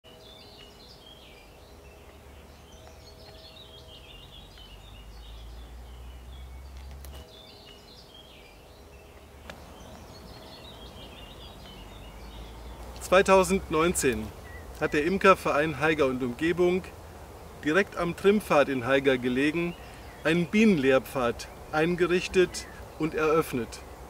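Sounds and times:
songbirds singing: 0.0 - 24.0.

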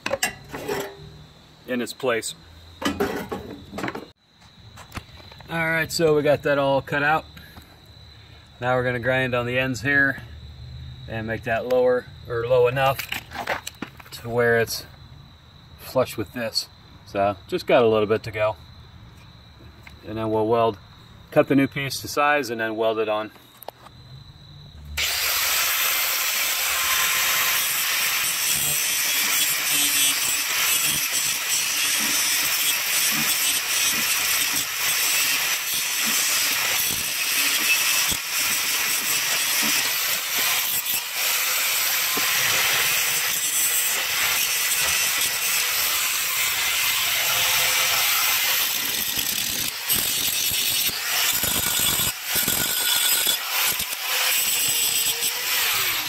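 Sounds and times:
angle grinder grinding steel: 0.1 - 1.2, 25.0 - 56.0.

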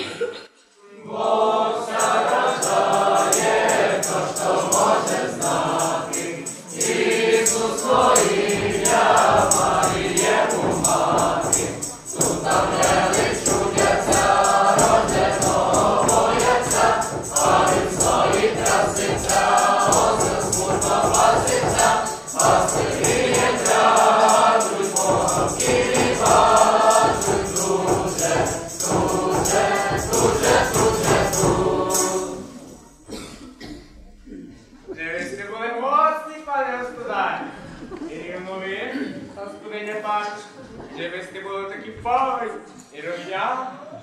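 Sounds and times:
group of people singing a carol: 0.0 - 33.8
bells jingling: 1.2 - 33.0.

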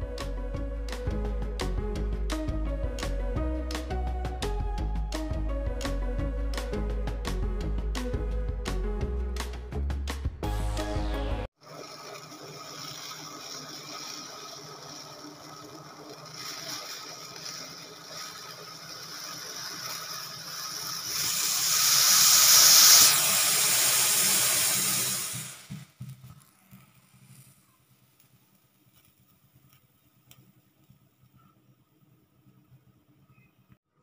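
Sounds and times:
milk tea hissing on the boil: 11.5 - 31.6.

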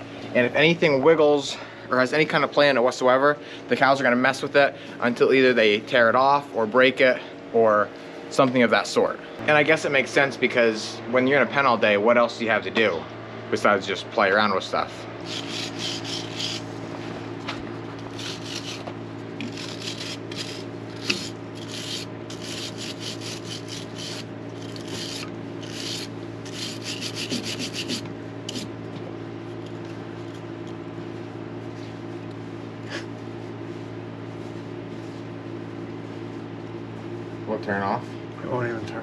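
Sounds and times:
steady low hum: 0.0 - 39.0
rough scraping strokes: 15.2 - 16.8, 18.1 - 28.7.

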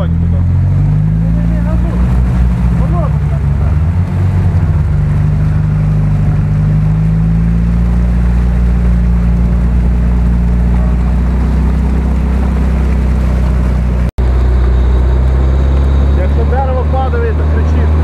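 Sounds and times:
truck engine drone under load: 0.0 - 18.0.

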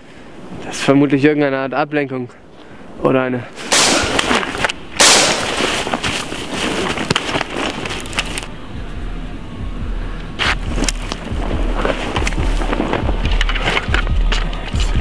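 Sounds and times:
loud gunshot: 3.7 - 4.4, 5.0 - 5.7
rapid gunfire cracks: 3.7 - 5.7
low rumble: 8.1 - 15.0.

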